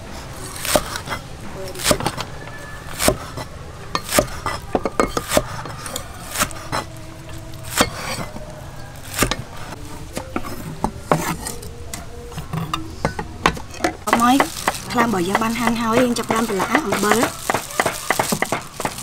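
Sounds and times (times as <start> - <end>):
cleaver chopping on wooden board: 5.1 - 5.6, 14.1 - 19.0.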